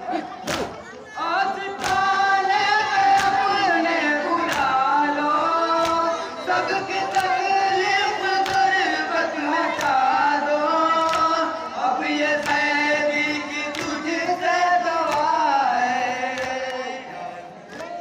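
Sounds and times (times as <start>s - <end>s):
hands slapping chests: 0.4s - 0.8s, 1.8s - 2.1s, 3.1s - 3.4s, 4.4s - 4.8s, 5.8s - 6.0s, 9.8s - 10.0s, 11.0s - 11.3s, 12.4s - 12.7s, 13.7s - 14.0s, 15.0s - 15.3s
men chanting in unison: 1.2s - 18.0s.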